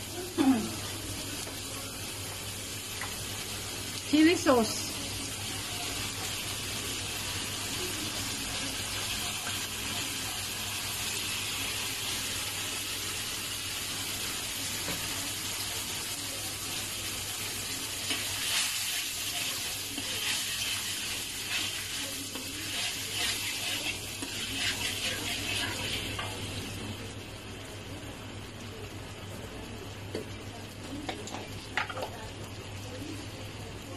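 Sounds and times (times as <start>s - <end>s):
sauce sizzling in a wok: 0.0s - 33.9s
metal spatula scraping pan: 22.6s - 26.2s.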